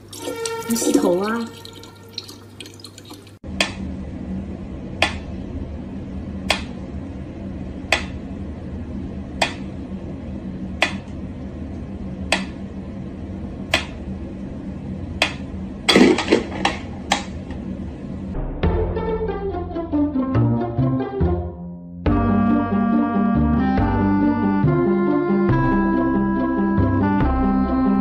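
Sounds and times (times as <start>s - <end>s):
low steady hum: 0.0s - 18.6s.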